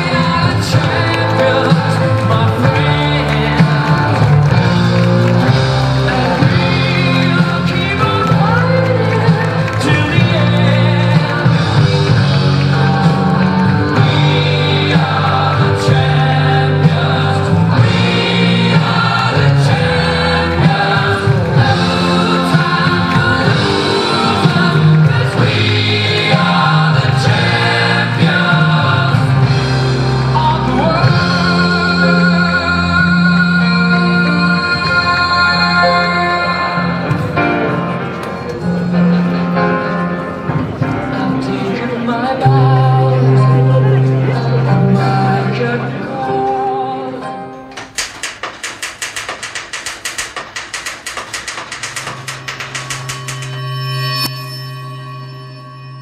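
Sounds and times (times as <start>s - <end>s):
steady bass line: 0.0s - 39.8s
loud music with singing: 0.0s - 54.3s.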